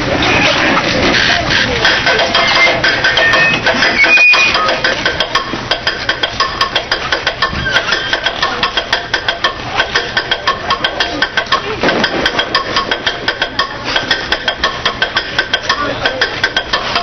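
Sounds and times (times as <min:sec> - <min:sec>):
fast percussive strikes: 0:00.5 - 0:17.0
short high whistle tones: 0:02.4 - 0:04.7
general din: 0:09.8 - 0:17.0.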